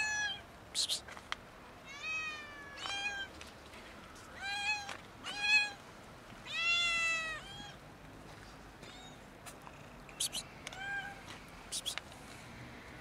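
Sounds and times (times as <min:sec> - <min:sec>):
cat meowing: 0:01.9 - 0:03.3, 0:06.5 - 0:07.8, 0:10.2 - 0:11.2.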